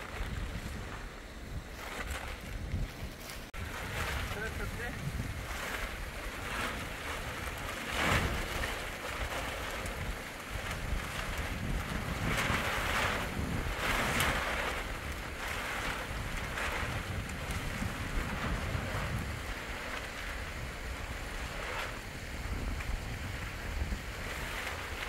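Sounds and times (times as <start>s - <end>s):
storm wind gusting: 0.0s - 25.0s.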